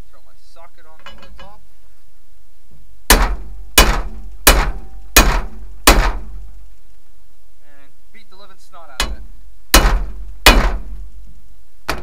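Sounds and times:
hammer striking metal: 0:03.1 - 0:06.3, 0:09.0 - 0:10.9.

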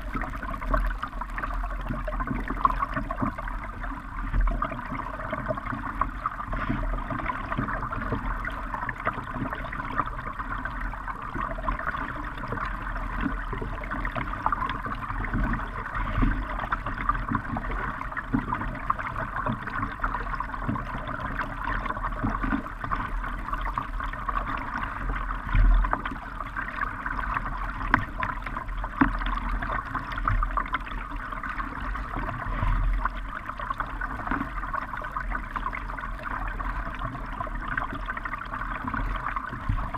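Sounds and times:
low knocks on kayak: 0:25.4 - 0:26.1.

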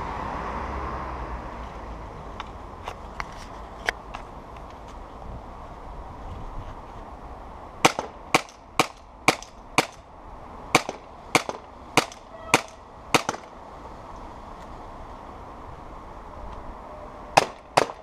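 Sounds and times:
airsoft pistol shots: 0:07.8 - 0:10.0, 0:10.8 - 0:13.5, 0:17.4 - 0:18.0.

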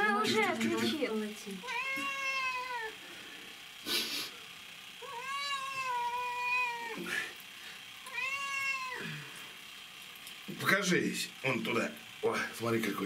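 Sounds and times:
cat meowing: 0:01.6 - 0:03.0, 0:05.0 - 0:07.0, 0:08.0 - 0:09.2.

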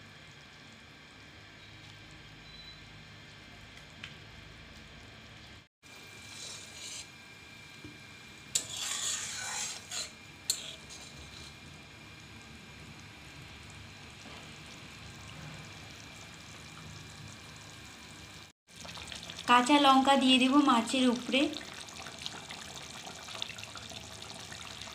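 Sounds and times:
gravy simmering: 0:05.9 - 0:24.9
spatula scraping metal pan: 0:06.3 - 0:07.1, 0:08.5 - 0:11.6.

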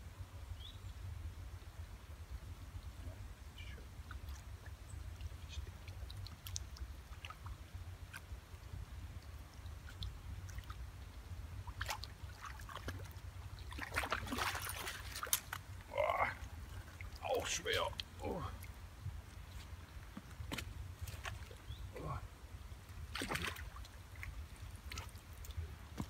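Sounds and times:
steady low rumble: 0:00.0 - 0:26.0
fish splashing in water: 0:11.7 - 0:15.6, 0:23.1 - 0:25.2.

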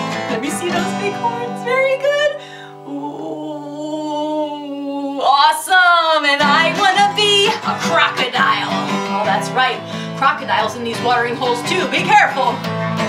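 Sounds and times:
acoustic guitar strumming: 0:00.0 - 0:03.0, 0:06.2 - 0:13.0
woman singing: 0:00.0 - 0:13.0
woman holding long vocal tone: 0:00.3 - 0:12.6
loud breathy burst: 0:09.8 - 0:10.2.

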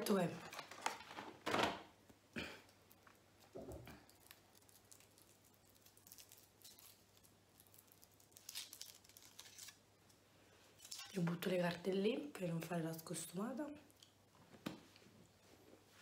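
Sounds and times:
foil wrapper crinkling: 0:04.0 - 0:09.8.

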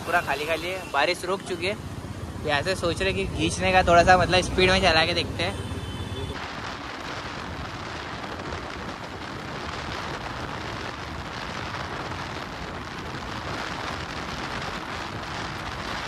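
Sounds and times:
wind rushing over microphone: 0:06.0 - 0:16.0.

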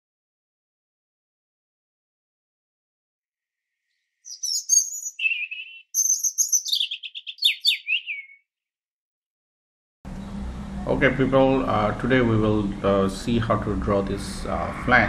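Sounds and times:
songbird singing: 0:03.8 - 0:08.5.

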